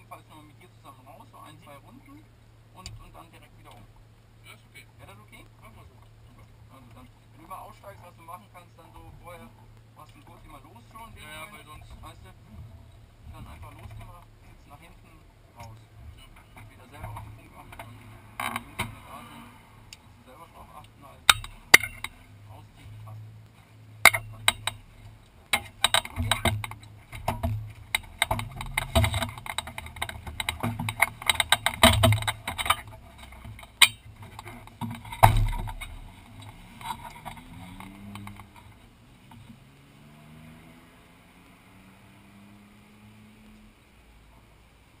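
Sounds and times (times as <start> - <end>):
seat fittings clicking and rattling: 21.2 - 22.3, 24.0 - 39.6
heavy thump: 25.6 - 37.4.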